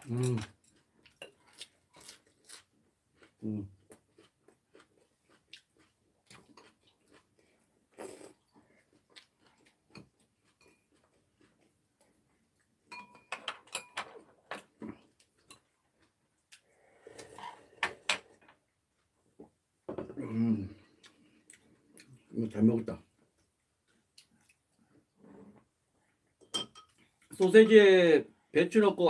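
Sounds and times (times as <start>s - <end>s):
chewing and mouth sounds: 0.0s - 12.8s, 23.4s - 25.0s
slurping from a bowl: 16.6s - 17.8s.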